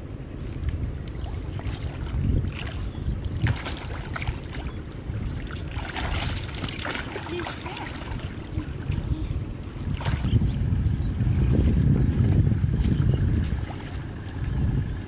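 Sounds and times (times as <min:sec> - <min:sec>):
low rumble: 0:00.0 - 0:15.0
water splashing by hands: 0:00.4 - 0:10.4.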